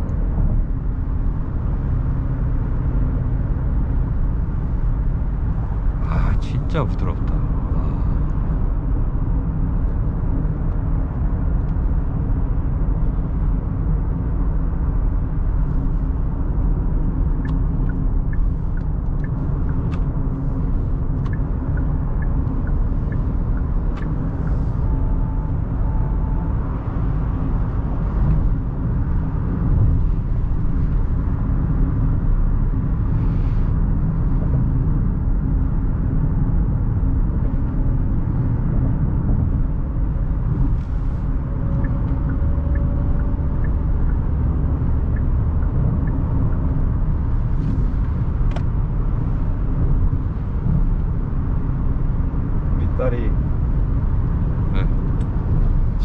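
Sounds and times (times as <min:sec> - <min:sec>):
road and tyre noise in car cabin: 0:00.0 - 0:56.0
faint ticks: 0:21.2 - 0:24.6.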